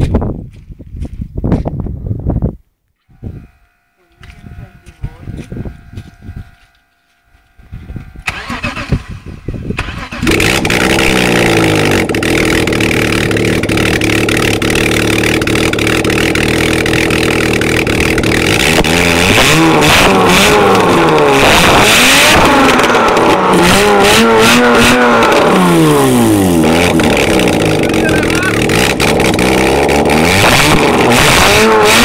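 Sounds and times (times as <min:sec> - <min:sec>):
engine idling and revving: 0:03.2 - 0:32.0
starter motor cranking: 0:07.5 - 0:21.4, 0:25.2 - 0:31.4.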